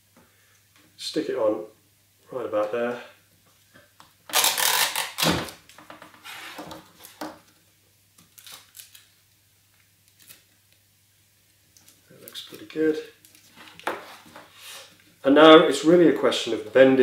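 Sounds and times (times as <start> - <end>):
tape ripping off roll: 4.3 - 7.4.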